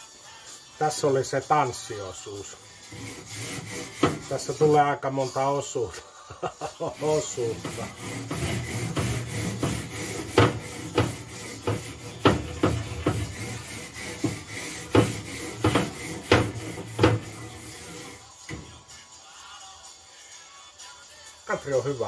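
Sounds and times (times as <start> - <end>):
wire brush scraping grate: 2.9 - 4.8, 7.0 - 18.2
brush knocking on metal grate: 3.6 - 4.3, 7.5 - 18.7.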